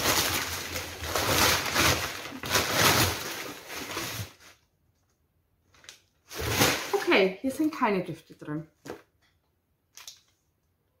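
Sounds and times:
packing paper rustling and crinkling: 0.0 - 4.7, 5.7 - 7.3.

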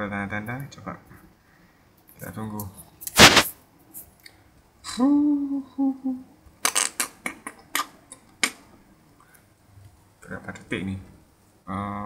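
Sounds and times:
rush of noise: 3.2 - 3.5
man humming: 4.9 - 6.3.

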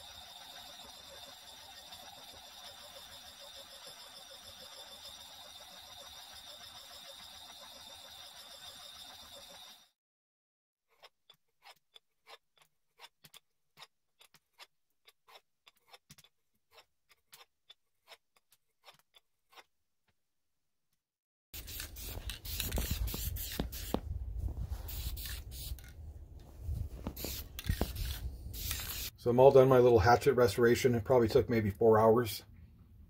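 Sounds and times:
sharpener scraping steel edge: 10.9 - 19.7
aerosol spray can hissing: 21.6 - 24.0, 24.9 - 25.8, 27.1 - 29.1.

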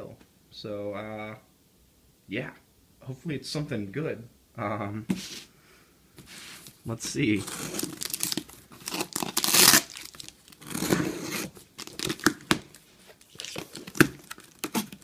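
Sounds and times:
cardboard rustling and crinkling: 6.2 - 15.0
packing tape ripping: 7.2 - 15.0.

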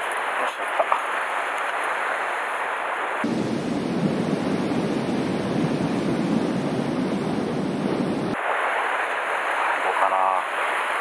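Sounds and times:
wind noise on microphone: 1.0 - 9.8.

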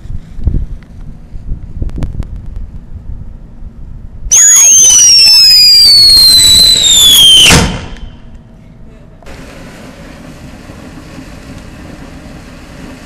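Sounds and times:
firework crackles: 4.3 - 8.2, 9.3 - 13.0
shrill falling firework whistle: 4.3 - 8.3.

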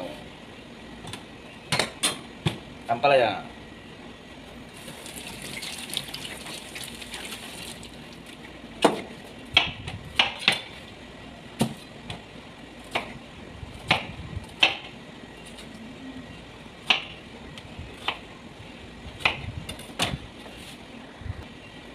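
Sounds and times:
tap water running: 4.8 - 8.4.

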